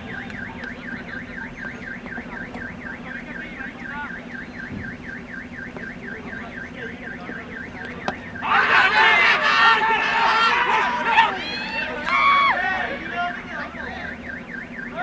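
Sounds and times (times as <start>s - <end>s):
electronic alarm warbling: 0.0s - 12.5s.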